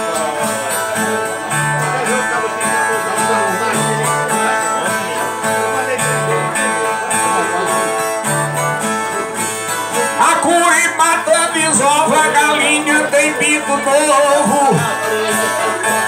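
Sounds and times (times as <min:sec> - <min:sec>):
strummed and plucked guitars: 0:00.0 - 0:16.0.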